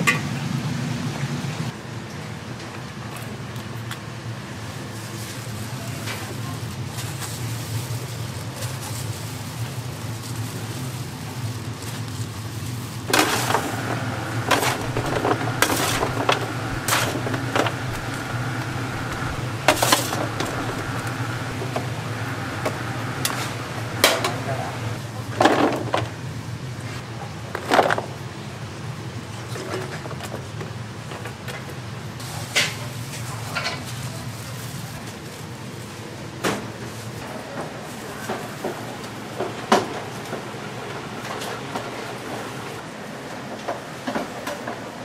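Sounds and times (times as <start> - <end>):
background voices: 13.1 - 25.0
steady low hum: 13.1 - 25.0
metal utensils clanking on trays: 13.1 - 26.0.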